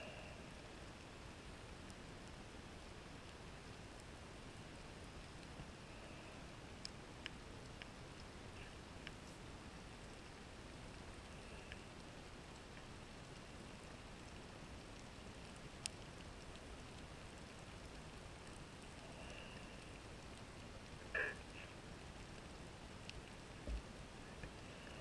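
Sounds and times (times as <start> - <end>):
faint underwater clicks: 4.8 - 9.4, 10.1 - 25.0.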